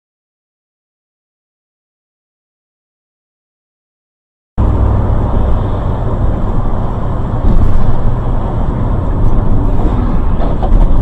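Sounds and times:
vehicle engine and road noise: 4.6s - 11.0s.

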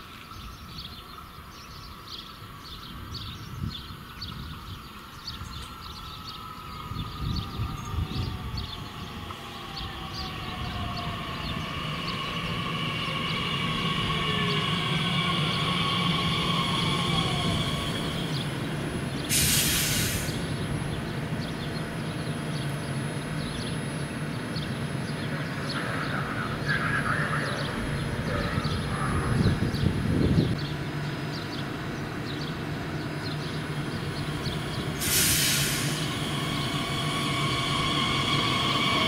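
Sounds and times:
electric train braking whine: 6.6s - 25.1s, 33.9s - 39.0s
sharp hiss of air: 19.2s - 20.5s, 34.9s - 37.8s.

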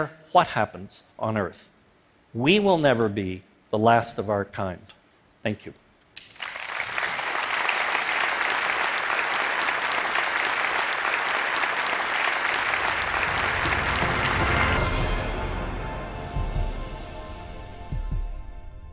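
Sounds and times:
audience applauding: 6.2s - 15.2s
low music: 12.3s - 18.9s.

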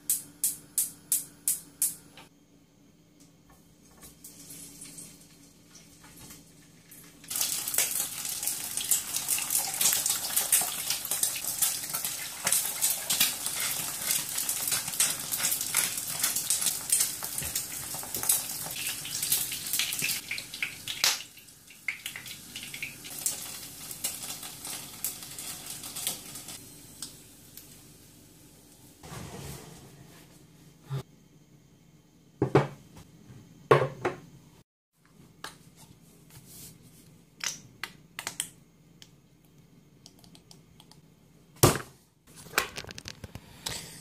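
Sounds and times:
food sizzling in a frying pan: 7.3s - 29.0s.

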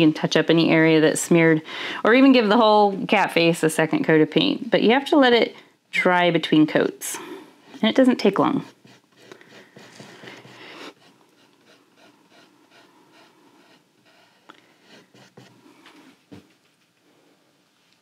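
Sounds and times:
paintbrush rubbing on canvas: 7.7s - 16.2s.

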